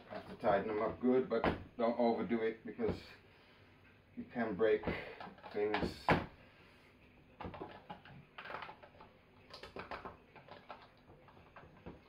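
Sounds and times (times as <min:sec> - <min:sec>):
small plastic clicks and knocks: 0:07.4 - 0:12.0.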